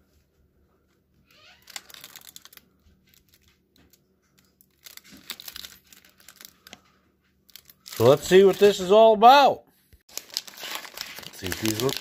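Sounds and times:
wrapper crinkling: 1.2 - 9.0, 10.1 - 12.0.

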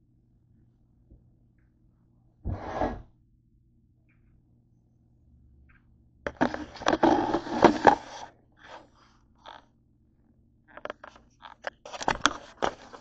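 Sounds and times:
camera scraping on table: 6.3 - 8.9.

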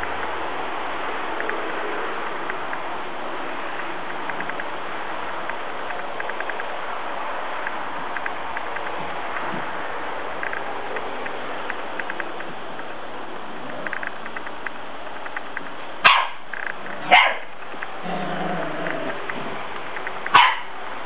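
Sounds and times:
puppy barking: 16.0 - 16.4, 17.0 - 17.5, 20.3 - 20.8
puppy growling: 17.0 - 19.8.

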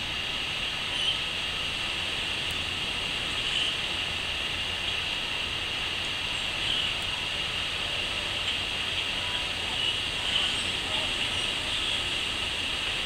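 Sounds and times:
crickets chirping: 0.0 - 13.0
faint brief insect calls: 0.9 - 1.3, 3.4 - 3.9.

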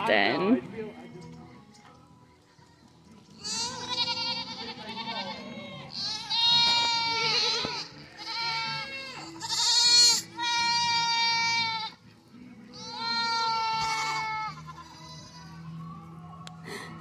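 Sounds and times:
goats bleating: 3.3 - 15.8.

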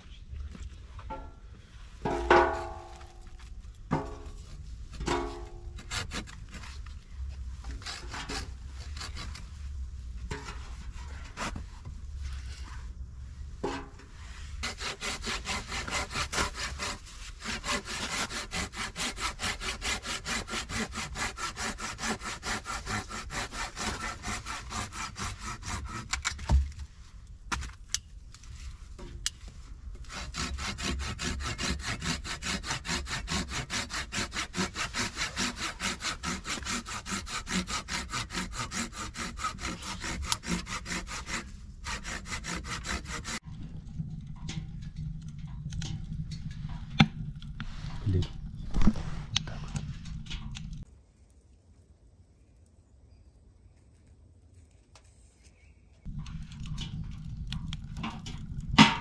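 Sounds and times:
knife shaving wood: 5.8 - 9.5, 14.5 - 26.6, 30.0 - 43.4.

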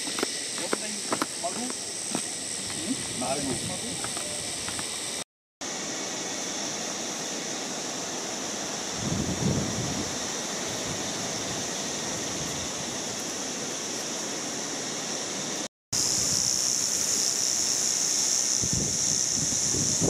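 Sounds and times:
cicada chorus drone: 0.0 - 20.0
wind on microphone: 2.5 - 5.0, 8.8 - 13.2, 18.5 - 20.0.

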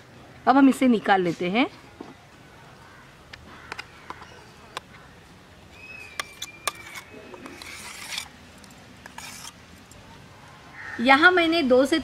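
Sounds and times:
high whistle-like tone: 5.8 - 7.4.

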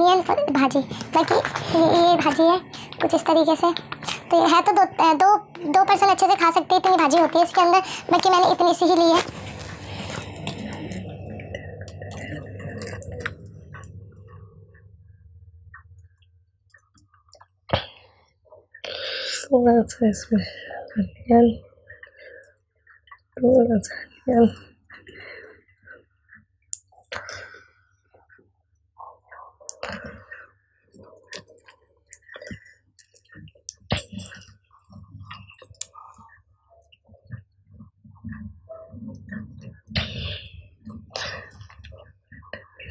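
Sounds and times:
low hum: 7.6 - 19.0
mouth clicks and smacks: 29.6 - 30.0, 31.0 - 42.9.

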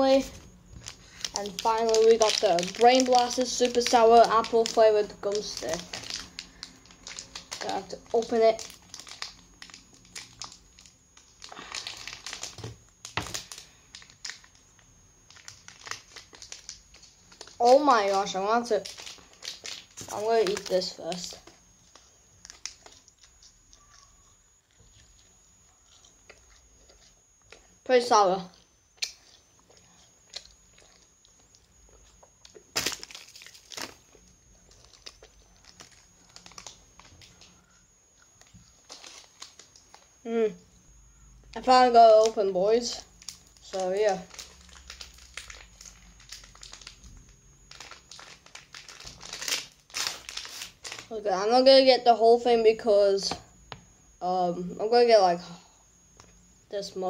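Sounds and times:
plastic wrapper crinkling: 0.0 - 24.1, 29.0 - 40.3, 42.1 - 51.4.

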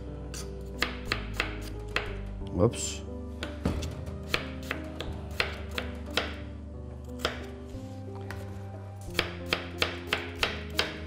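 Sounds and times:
soft background music: 0.0 - 11.0
knife slicing potatoes on board: 0.3 - 2.2, 3.4 - 6.4, 7.1 - 11.0.

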